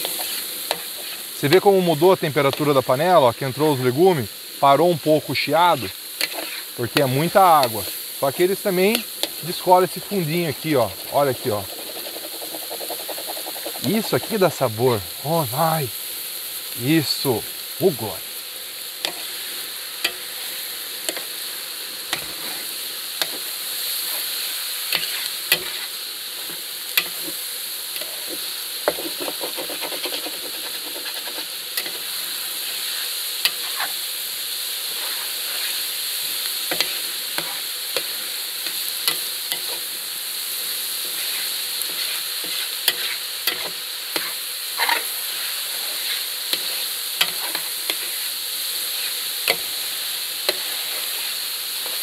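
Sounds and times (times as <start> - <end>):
utensil scraping pan: 0.0 - 2.7, 5.7 - 8.0, 10.7 - 14.5, 25.0 - 27.4, 28.0 - 32.1, 41.0 - 49.8, 50.4 - 52.0
meat and vegetables sizzling: 0.0 - 52.0.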